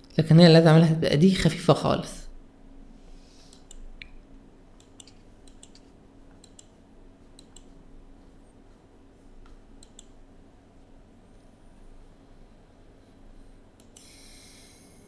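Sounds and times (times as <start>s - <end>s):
faint steady hum: 0.0s - 15.0s
computer mouse clicks: 3.5s - 4.2s, 4.8s - 7.7s, 9.4s - 10.2s, 13.8s - 14.2s.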